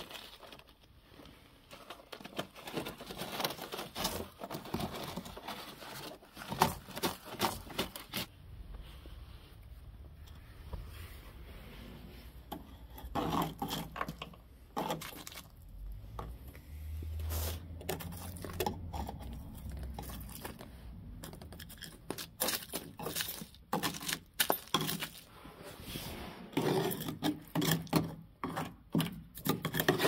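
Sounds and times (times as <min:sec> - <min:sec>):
screwdriver scraping rusted metal: 0:12.5 - 0:15.2, 0:26.5 - 0:30.0.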